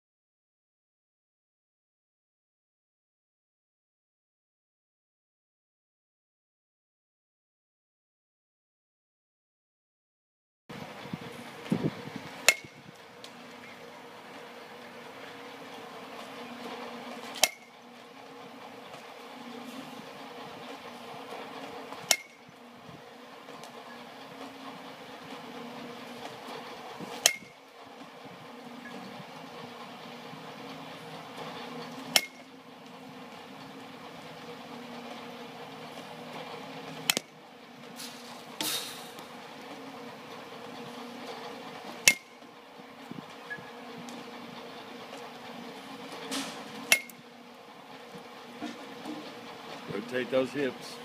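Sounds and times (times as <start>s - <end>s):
steady low hum: 10.7s - 51.0s
bat hitting baseball: 12.4s - 12.8s, 17.3s - 17.7s, 22.1s - 22.4s, 27.2s - 27.6s, 32.1s - 32.4s, 37.1s - 37.4s, 42.1s - 42.3s, 46.4s - 47.2s.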